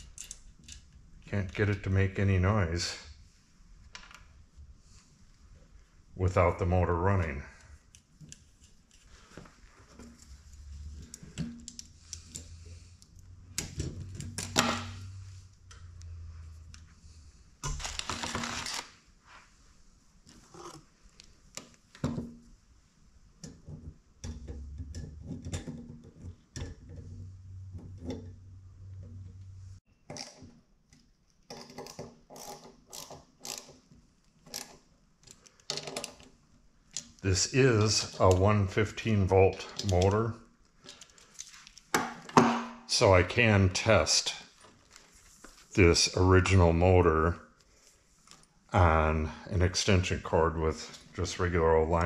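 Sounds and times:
metallic clicks and rattles: 0.0 - 1.0.

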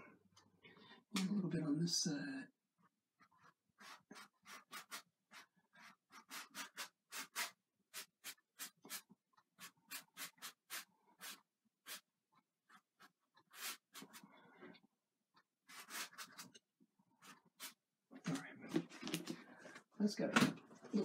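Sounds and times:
paintbrush scratching on canvas: 2.8 - 14.3, 15.6 - 17.8.

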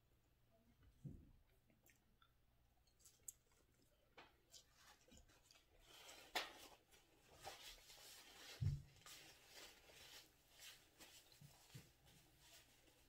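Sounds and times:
paper napkin rustling: 6.0 - 13.0.

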